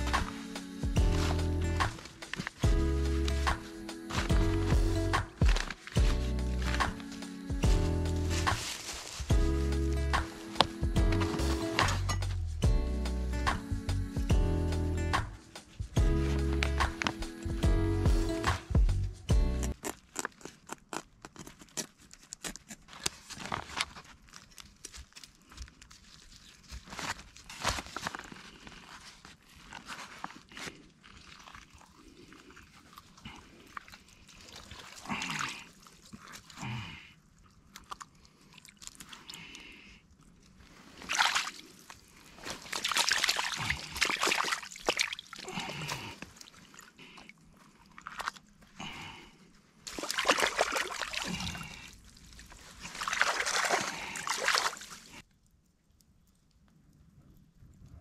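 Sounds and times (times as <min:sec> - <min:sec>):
water sloshing and splashing: 0:00.0 - 0:09.4, 0:29.2 - 0:39.4, 0:40.2 - 0:48.9, 0:49.8 - 0:55.4.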